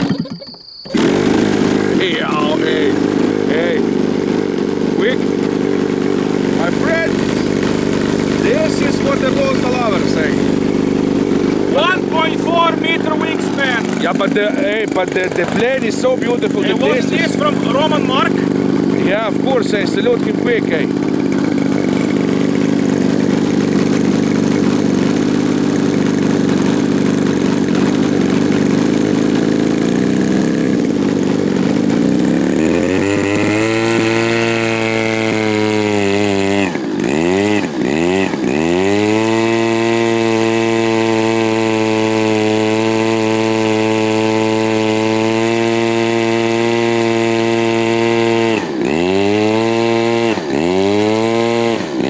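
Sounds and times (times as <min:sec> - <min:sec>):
model plane engine running: 0:00.0 - 0:52.0.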